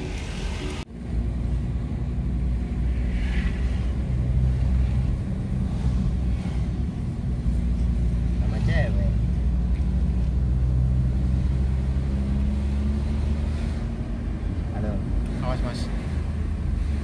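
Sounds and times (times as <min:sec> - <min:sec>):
car engine drone from inside: 0:00.0 - 0:17.0.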